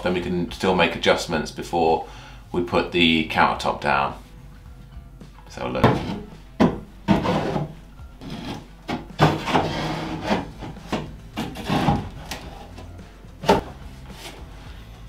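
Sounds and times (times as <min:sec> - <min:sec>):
sink scraping against wood: 0:05.8 - 0:14.4
knocks on wood: 0:06.6 - 0:07.2.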